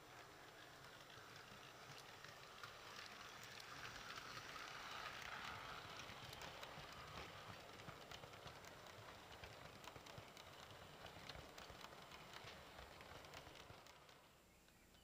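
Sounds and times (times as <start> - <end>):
model train wheels rattling: 0.0 - 15.0.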